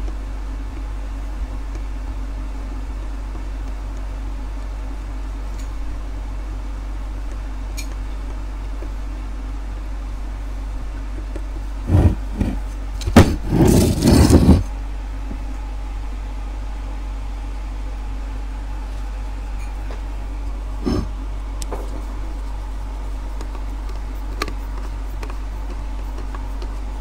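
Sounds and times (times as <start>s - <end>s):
electric motor humming: 11.8s - 14.7s.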